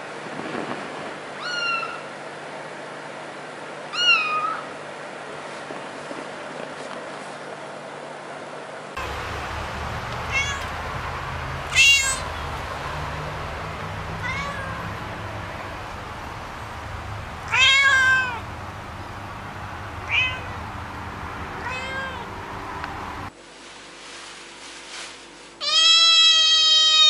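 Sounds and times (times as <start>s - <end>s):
cat meowing: 1.4s - 2.1s, 3.9s - 4.7s, 10.2s - 11.0s, 11.6s - 15.9s, 16.8s - 18.5s, 20.0s - 20.6s, 21.6s - 22.3s, 25.6s - 27.0s.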